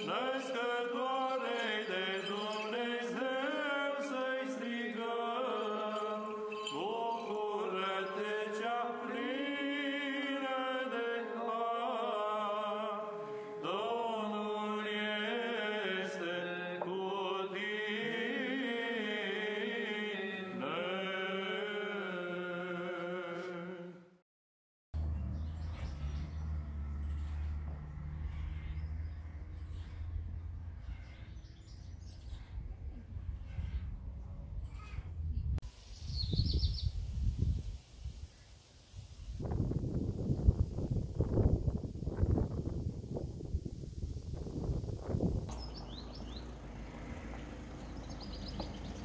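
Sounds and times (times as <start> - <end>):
chanted vocal melody: 0.0 - 24.2.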